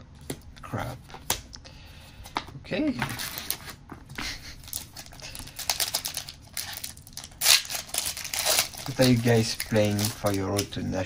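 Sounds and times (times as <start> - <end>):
card rustle: 3.0 - 3.9, 4.5 - 10.8.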